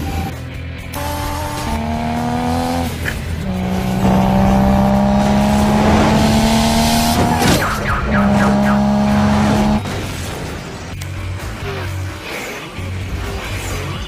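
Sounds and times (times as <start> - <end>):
race car engine accelerating: 0.9 - 10.1.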